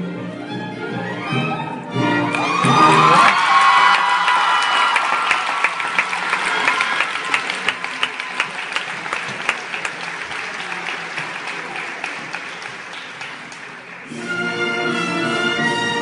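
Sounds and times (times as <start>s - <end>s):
orchestra playing: 0.0s - 3.4s, 13.2s - 16.0s
audience applauding: 2.1s - 14.2s.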